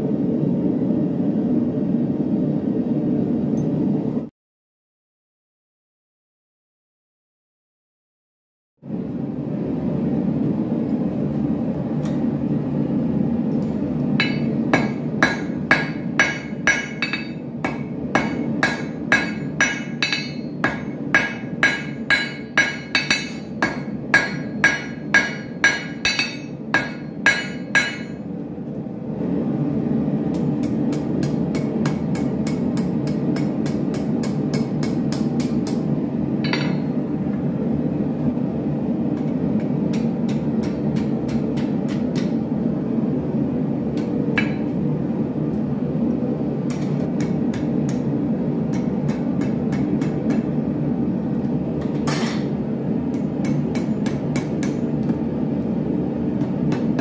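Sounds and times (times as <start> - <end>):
hammer ringing on anvil: 14.2 - 28.2, 36.4 - 36.9.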